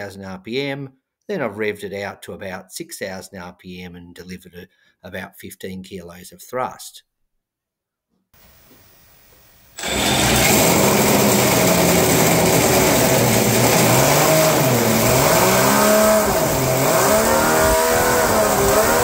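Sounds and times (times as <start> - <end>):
model aero engine revving: 9.8 - 19.0.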